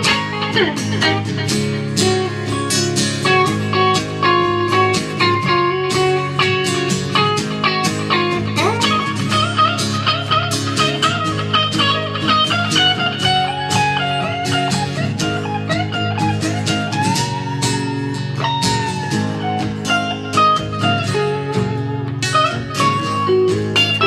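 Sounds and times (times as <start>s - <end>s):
acoustic guitar strumming chords: 0.0s - 24.0s
electric guitar lead line: 0.0s - 24.0s.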